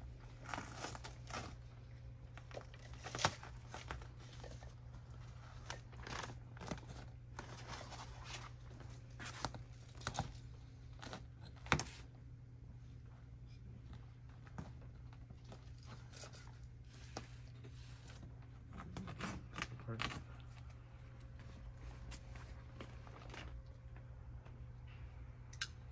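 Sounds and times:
steady low hum: 0.0 - 25.9
fabric and foam tearing: 0.3 - 1.8.

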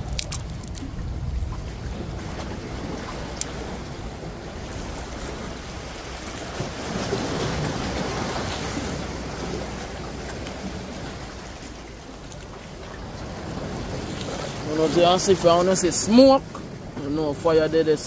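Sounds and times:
low rumble: 0.0 - 6.8
wind on microphone: 0.0 - 11.7
waves lapping against rocks: 0.0 - 18.0.

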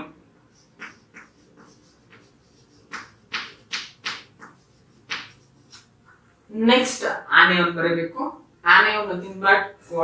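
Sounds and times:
chalk scratching on blackboard: 0.5 - 6.0.

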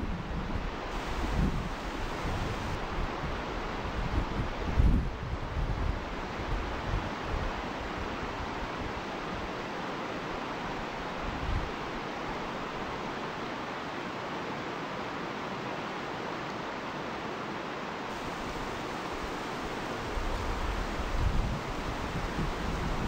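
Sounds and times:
wind buffeting microphone: 0.0 - 2.8, 18.4 - 23.0
river rapids rushing over rocks: 0.9 - 2.8, 9.0 - 23.0.

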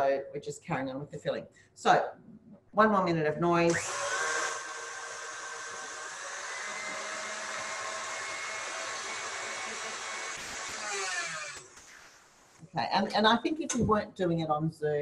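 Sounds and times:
stand mixer whirring: 3.8 - 10.2.

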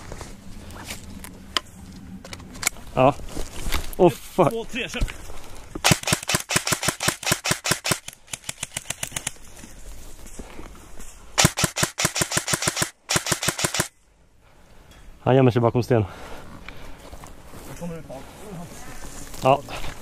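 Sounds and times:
airsoft guns firing bursts: 5.8 - 9.5, 11.4 - 13.9.

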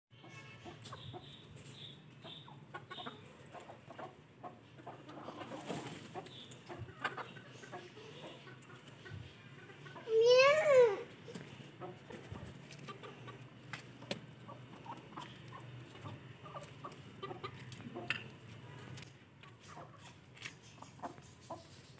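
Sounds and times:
chickens clucking: 0.2 - 21.9.

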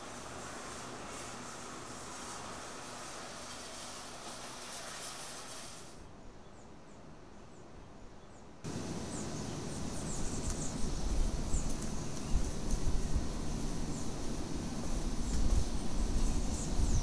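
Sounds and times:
steady hiss: 0.0 - 6.1, 8.7 - 17.0
small birds chirping: 8.3 - 17.0.

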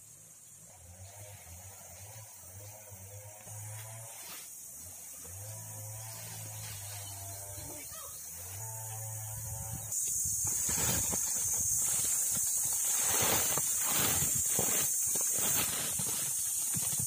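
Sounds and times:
steady high hiss: 0.0 - 2.8
mangoes thudding on ground: 10.4 - 17.0.

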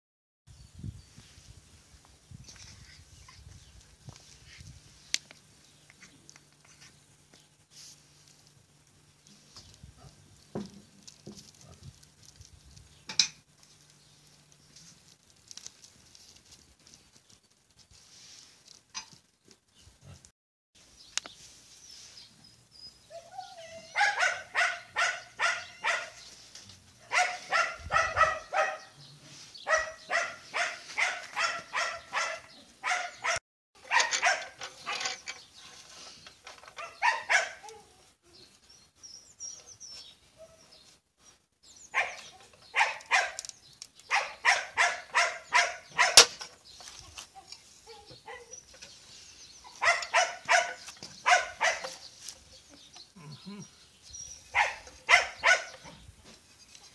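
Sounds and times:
dog yapping: 23.6 - 26.2, 27.0 - 28.9, 29.7 - 35.0, 36.8 - 37.8, 44.1 - 46.3, 49.6 - 52.0, 54.5 - 56.0.

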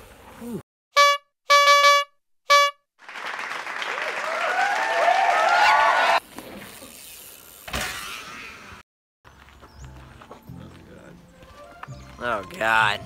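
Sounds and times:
air horn honk: 0.9 - 2.8
crowd cheering and screaming: 3.9 - 6.2.

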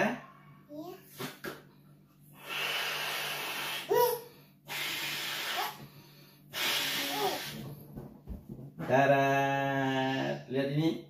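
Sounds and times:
breathy balloon blowing: 2.3 - 8.0.

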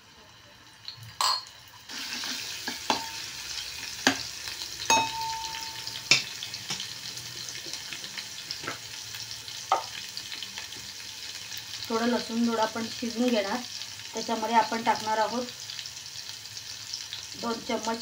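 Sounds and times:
garlic sizzling in hot oil: 0.0 - 18.0
metal ladle knocking against pot: 4.9 - 6.3.

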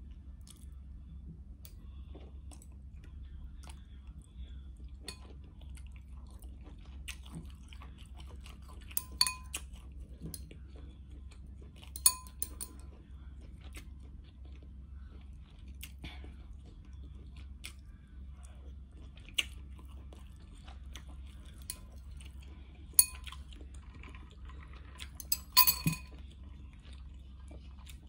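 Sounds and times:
chewing and slurping noodles: 3.6 - 12.1, 12.7 - 25.3, 26.1 - 28.0
utensil clinking glass bowl: 8.9 - 9.6, 12.0 - 12.8, 23.0 - 23.4, 25.1 - 26.2.

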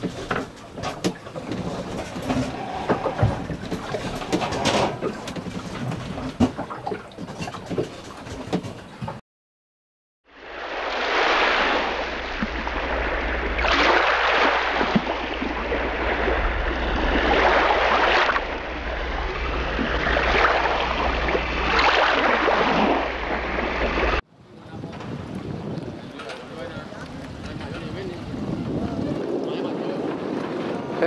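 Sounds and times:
rushing water: 0.0 - 8.7, 10.3 - 31.0.

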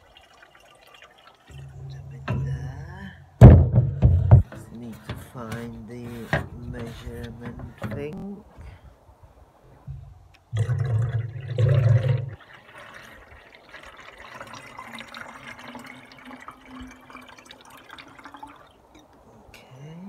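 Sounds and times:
water pouring into plastic tank: 0.0 - 2.4, 10.6 - 18.8.

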